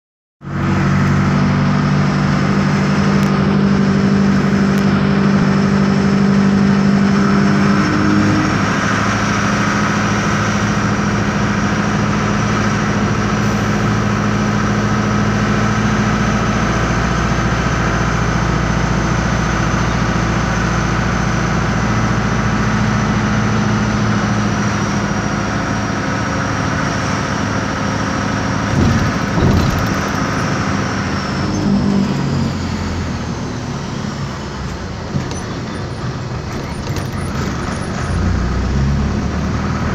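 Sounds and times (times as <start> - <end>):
diesel engine drone: 0.4 - 39.9
short knocks: 28.7 - 30.6.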